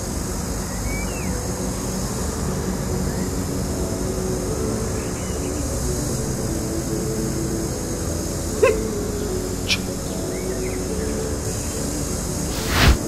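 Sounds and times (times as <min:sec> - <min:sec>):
faint bird chirps: 0:08.6 - 0:11.8.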